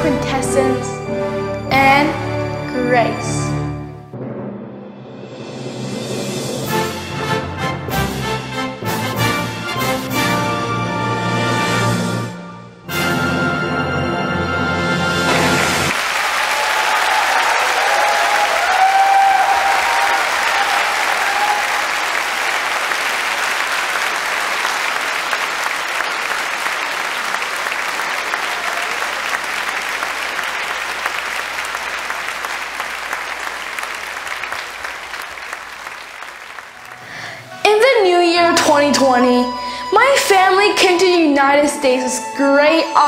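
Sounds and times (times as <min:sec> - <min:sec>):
large audience applauding: 0:15.3 - 0:37.6.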